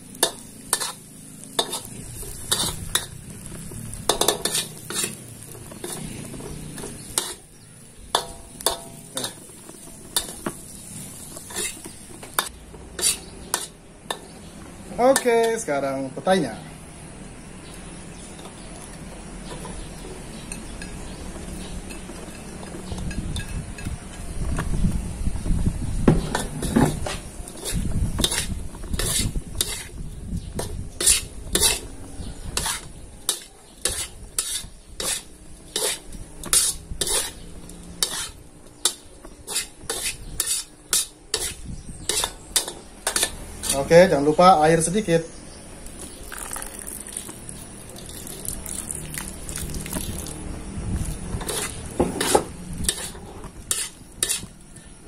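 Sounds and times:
food sizzling in a wok: 0:00.0 - 0:19.5, 0:25.1 - 0:55.0
metal spatula scraping a wok: 0:00.2 - 0:14.5, 0:26.2 - 0:44.2, 0:51.2 - 0:55.0.

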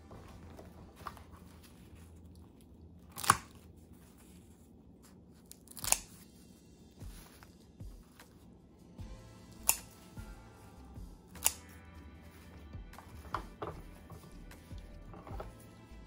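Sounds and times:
scissors snipping dry seaweed: 0:05.4 - 0:06.2, 0:09.6 - 0:10.0, 0:11.4 - 0:11.8.

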